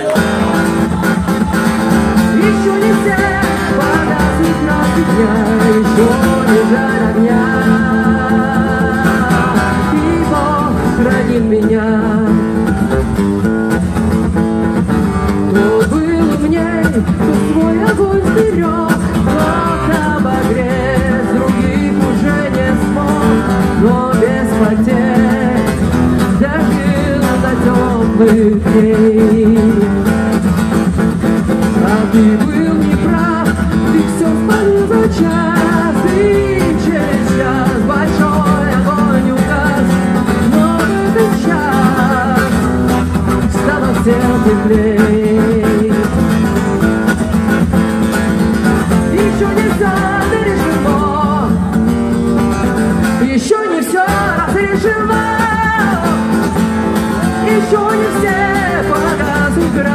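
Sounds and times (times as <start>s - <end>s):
acoustic guitar strumming: 0.0s - 59.9s
woman singing: 2.3s - 12.4s, 31.8s - 42.5s, 49.1s - 51.6s, 53.2s - 56.5s, 57.2s - 59.9s.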